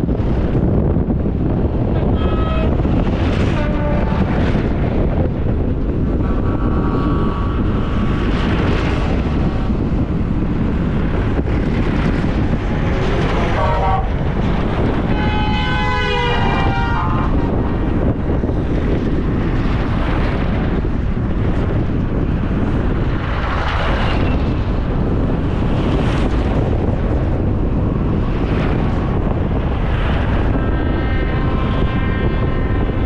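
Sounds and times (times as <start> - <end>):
road and wind rumble: 0.0 - 33.0
tractor horns honking: 13.6 - 14.1, 15.0 - 17.4.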